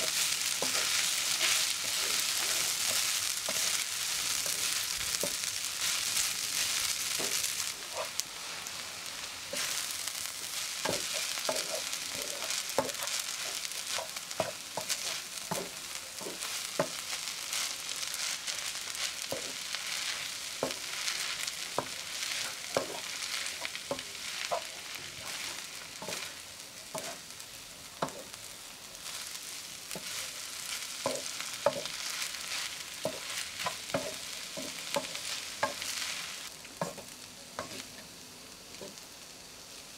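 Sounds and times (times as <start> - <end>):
spatula knocking and scraping pan: 0.0 - 6.0, 7.1 - 8.2, 10.4 - 17.0, 19.2 - 27.2, 28.0 - 28.4, 29.9 - 36.1, 36.8 - 37.9
food sizzling in wok: 0.0 - 39.9.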